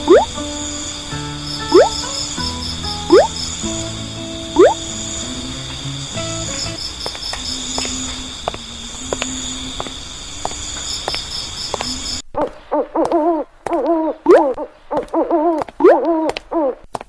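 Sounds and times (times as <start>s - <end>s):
crickets chirping: 0.0s - 12.2s.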